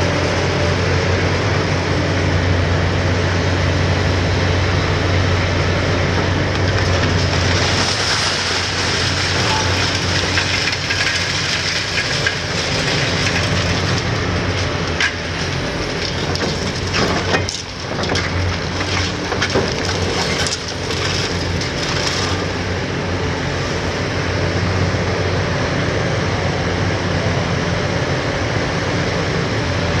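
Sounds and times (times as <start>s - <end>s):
diesel excavator engine: 0.0s - 30.0s
concrete cracking and knocking: 6.2s - 22.7s.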